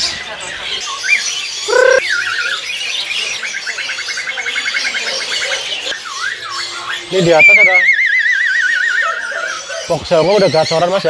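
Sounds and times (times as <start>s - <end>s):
caged songbirds singing: 0.0s - 11.0s
rapid even bird trill: 1.7s - 2.4s
loud harsh bird call: 6.0s - 10.8s
wavering whistles: 7.2s - 9.2s.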